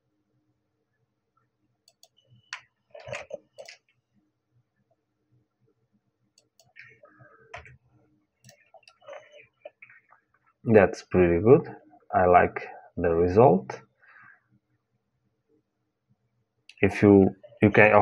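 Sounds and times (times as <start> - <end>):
mouse and keyboard clicks: 1.9 - 3.9, 8.4 - 9.9.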